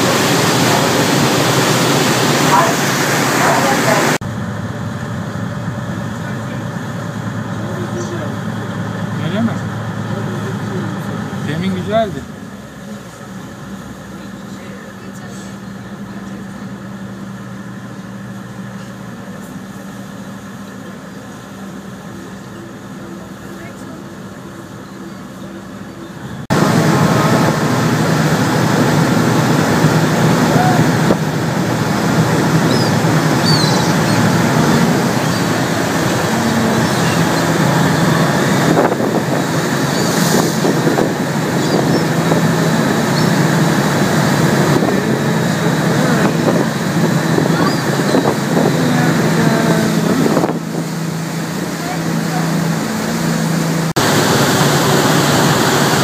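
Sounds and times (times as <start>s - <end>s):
boat engine humming: 0.0s - 56.0s
deeper engine tone: 0.0s - 56.0s
water rushing in wake: 0.0s - 56.0s
wind buffeting microphone: 26.5s - 56.0s.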